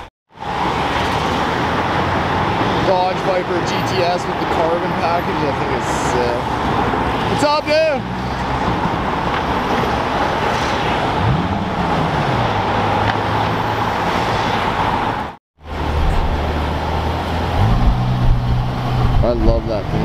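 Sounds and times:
city street traffic: 0:00.0 - 0:20.0
sports car engine revving: 0:15.8 - 0:19.3.

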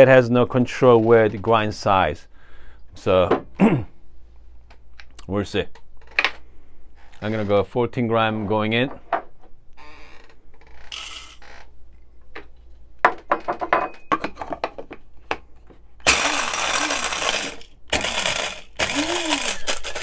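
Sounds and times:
blade coffee grinder running: 0:10.9 - 0:11.4, 0:16.1 - 0:20.0
coffee beans clattering: 0:10.9 - 0:11.4, 0:16.1 - 0:20.0
grinder lid fitting: 0:16.1 - 0:20.0.

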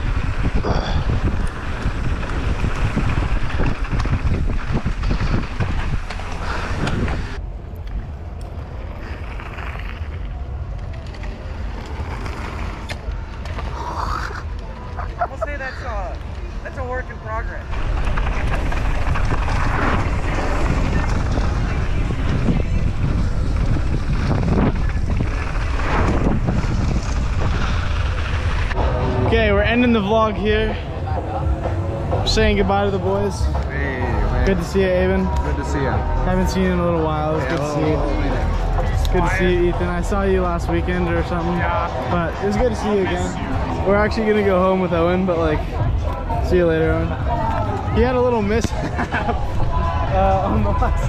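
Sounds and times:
bike clattering and rattling: 0:00.0 - 0:07.4, 0:08.0 - 0:13.7, 0:17.6 - 0:30.6
bike tyres on dirt trail: 0:00.0 - 0:14.8, 0:17.6 - 0:30.2
wind buffeting microphone: 0:00.0 - 0:15.0, 0:16.2 - 0:51.0.

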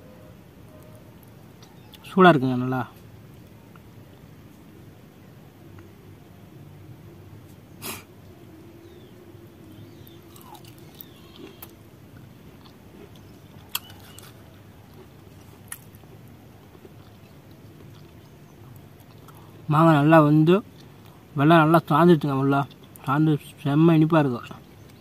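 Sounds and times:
person chewing: 0:09.7 - 0:19.7, 0:20.7 - 0:21.3, 0:22.6 - 0:23.1
mouth smacks and clicks: 0:10.0 - 0:11.8, 0:12.6 - 0:15.1.

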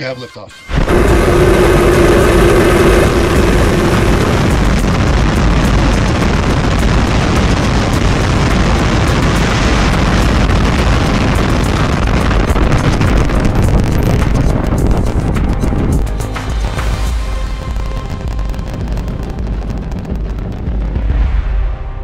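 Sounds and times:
humming tone: 0:00.7 - 0:16.2
rocket engines roaring: 0:00.7 - 0:16.3, 0:17.0 - 0:21.0.

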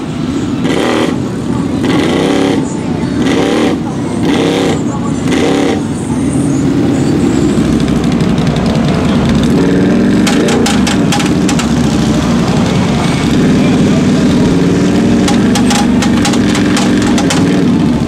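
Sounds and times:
four-wheeler engine revving: 0:00.0 - 0:18.0
sharp clicks: 0:10.2 - 0:11.9, 0:15.2 - 0:17.6.

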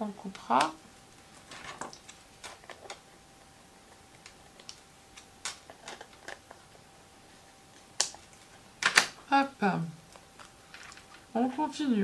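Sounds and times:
paper rustling: 0:01.2 - 0:03.0.

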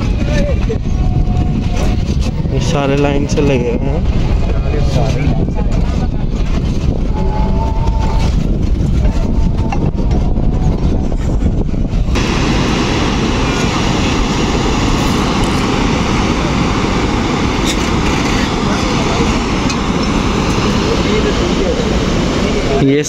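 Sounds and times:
low rumble: 0:00.0 - 0:22.8
water rushing through gates: 0:11.9 - 0:23.0.

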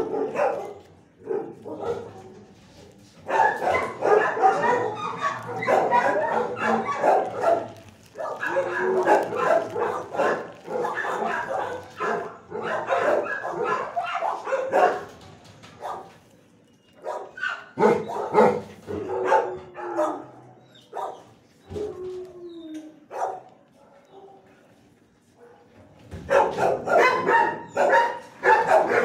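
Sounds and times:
dogs barking: 0:00.0 - 0:02.4, 0:03.2 - 0:15.2, 0:15.8 - 0:16.3, 0:17.0 - 0:21.4, 0:23.1 - 0:24.5, 0:25.4 - 0:29.0.

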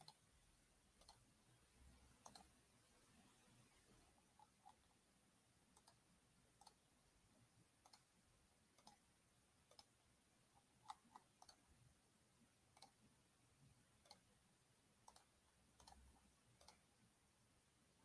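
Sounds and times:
computer mouse clicks: 0:00.0 - 0:00.3, 0:01.0 - 0:01.3, 0:02.1 - 0:02.6, 0:05.7 - 0:06.0, 0:06.6 - 0:06.8, 0:07.8 - 0:08.1, 0:08.7 - 0:09.1, 0:09.7 - 0:10.0, 0:10.6 - 0:11.7, 0:12.7 - 0:13.1, 0:14.0 - 0:14.3, 0:15.0 - 0:16.9.

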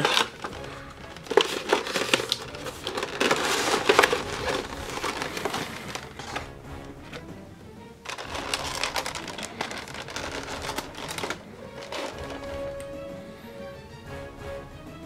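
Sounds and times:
plastic packaging crinkling: 0:00.0 - 0:06.5, 0:08.1 - 0:12.9.

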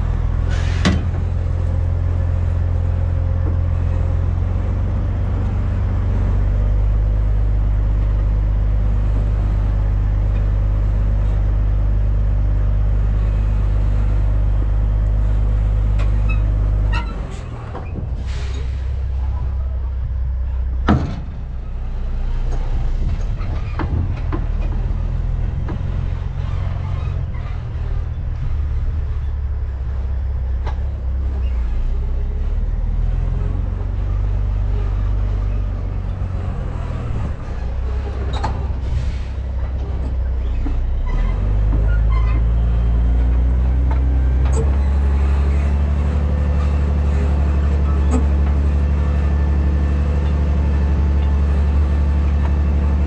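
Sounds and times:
diesel engine running under load: 0:00.0 - 0:53.0
sharp clunk: 0:20.8 - 0:21.4.

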